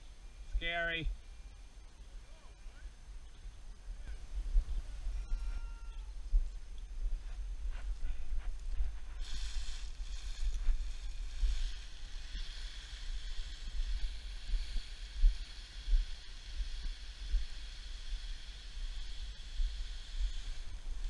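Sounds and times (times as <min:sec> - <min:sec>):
steady high hiss: 0:00.0 - 0:21.0
wind buffeting microphone: 0:03.7 - 0:12.3.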